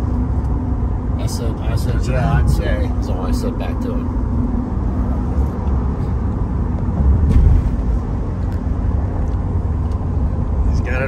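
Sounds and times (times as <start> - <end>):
road and engine rumble in cabin: 0.0 - 11.0.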